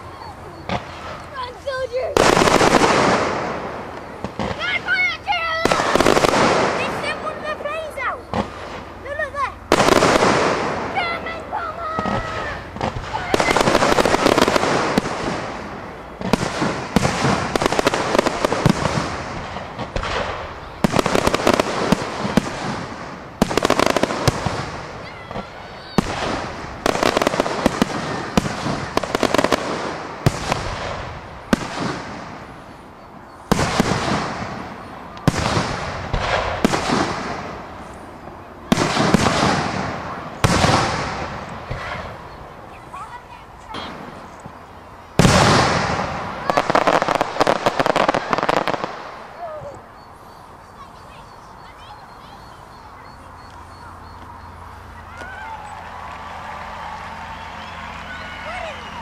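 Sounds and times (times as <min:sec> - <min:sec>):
firework shells bursting: 0:00.7 - 0:43.0.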